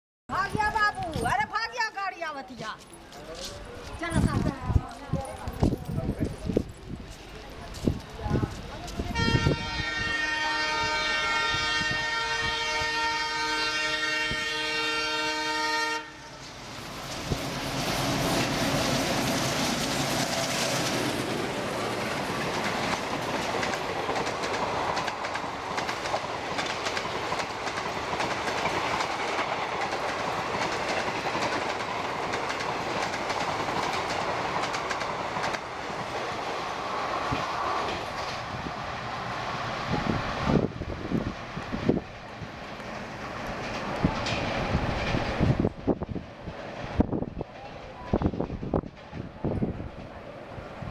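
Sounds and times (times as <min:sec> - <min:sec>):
train coaches passing: 0:00.3 - 0:50.9
locomotive air horn blast: 0:09.1 - 0:16.4.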